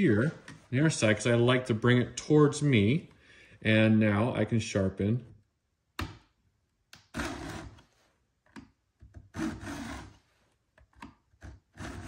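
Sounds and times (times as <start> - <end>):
file rasping on chainsaw tooth: 9.3 - 10.2, 11.7 - 12.0.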